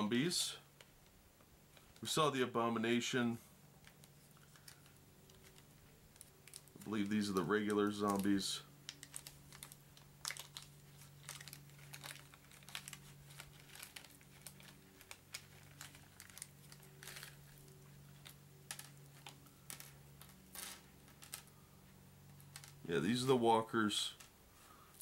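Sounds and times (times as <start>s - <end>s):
low steady hum: 0.0s - 25.0s
plastic bag crinkling: 3.8s - 21.6s, 22.2s - 22.9s
clicks of plastic miniatures: 22.3s - 22.8s.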